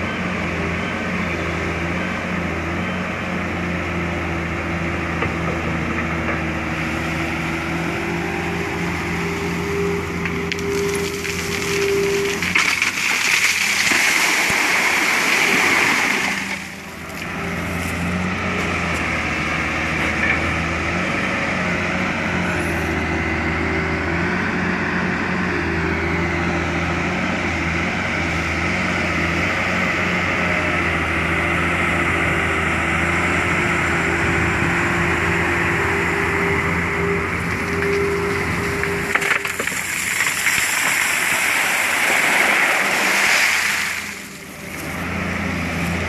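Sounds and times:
diesel engine running: 0.0 - 46.0
gravel and water tipped into truck: 10.5 - 16.7, 39.1 - 44.2.

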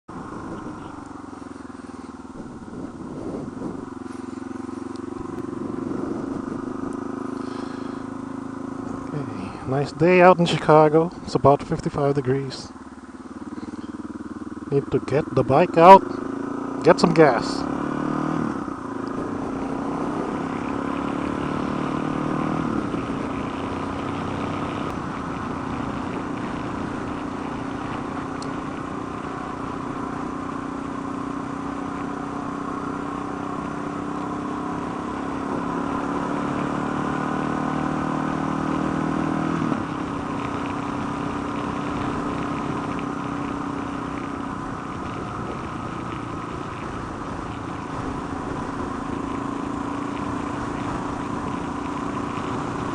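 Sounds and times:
motorcycle engine running: 0.0 - 52.9
wind noise: 2.3 - 4.2, 5.2 - 6.9.

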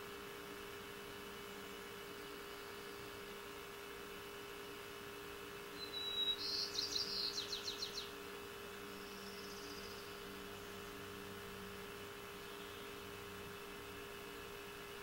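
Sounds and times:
steady low hum: 0.0 - 15.0
songbird singing trill: 5.7 - 8.2, 8.8 - 10.8, 12.4 - 13.1.

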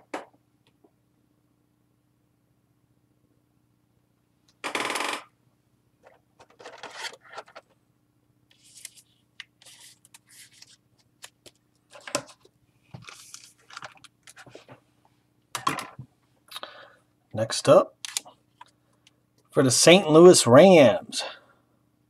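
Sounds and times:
cards scraping and rustling: 6.0 - 7.8, 8.5 - 14.8.

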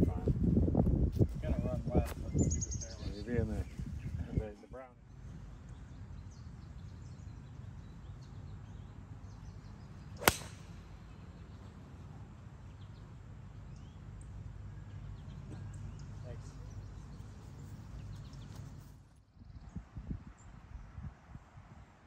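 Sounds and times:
golf club striking ball: 10.2 - 10.9.

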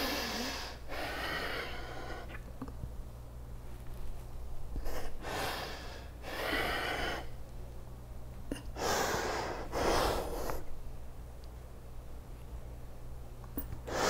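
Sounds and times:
person breathing deeply: 0.0 - 2.4, 4.8 - 7.4, 8.5 - 10.7
faint low hum: 0.0 - 14.0.

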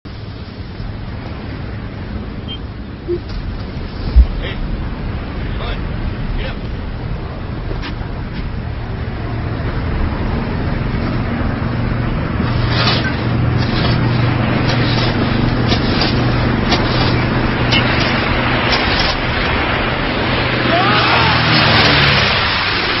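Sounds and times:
propeller engines droning: 0.1 - 23.0
water rushing hiss: 11.6 - 23.0.

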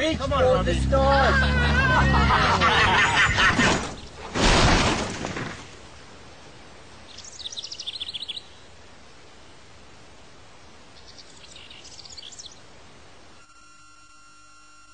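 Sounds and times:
car crashing: 0.0 - 5.8
bird chirping: 7.1 - 8.7, 10.9 - 12.6.

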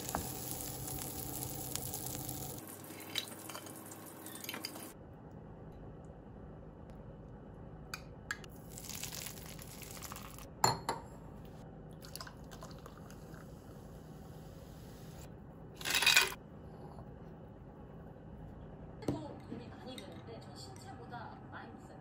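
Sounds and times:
ice cubes clinking into glass: 15.8 - 16.4.

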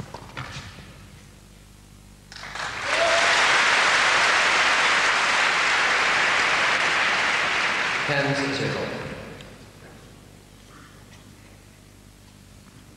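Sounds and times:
crowd applauding: 2.3 - 9.2.

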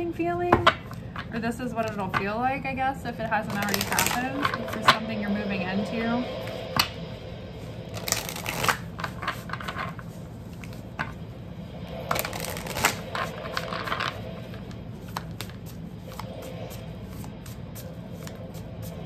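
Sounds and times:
cards being shuffled: 3.5 - 4.8, 7.9 - 11.1, 12.1 - 19.0.

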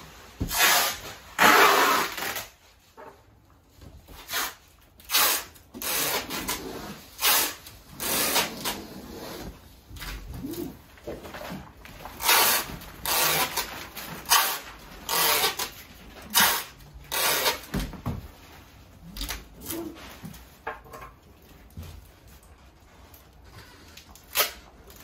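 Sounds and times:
packing material ripping and rustling: 0.0 - 2.8, 4.2 - 17.7.

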